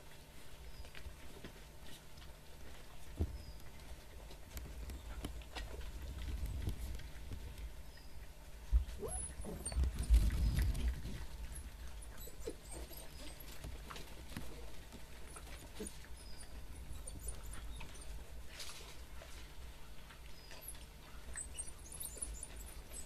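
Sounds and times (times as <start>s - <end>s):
puppies squeaking and whining: 3.1s - 3.9s, 7.8s - 19.2s, 19.8s - 23.0s.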